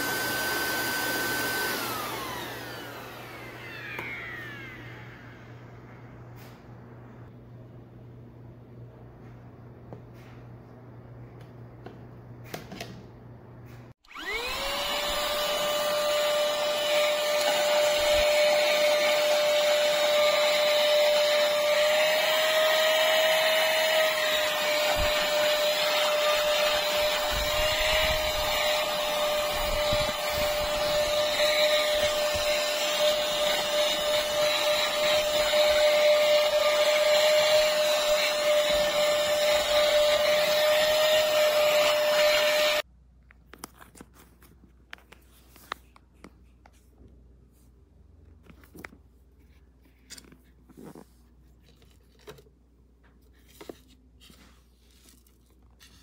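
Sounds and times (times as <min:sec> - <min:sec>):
handheld vacuum cleaner whine: 0:00.0 - 0:06.6, 0:14.0 - 0:42.9.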